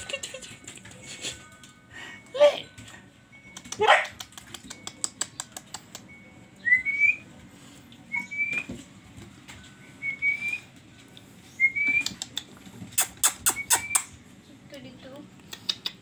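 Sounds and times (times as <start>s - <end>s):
person whistling high notes: 13.4s - 14.0s.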